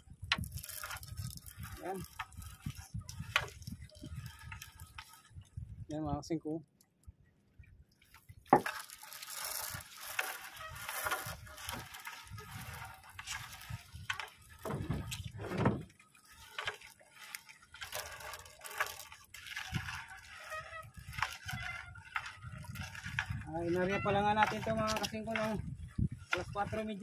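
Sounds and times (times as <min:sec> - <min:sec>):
water splashing: 0:07.8 - 0:27.0
knocks in a small boat: 0:14.6 - 0:15.9.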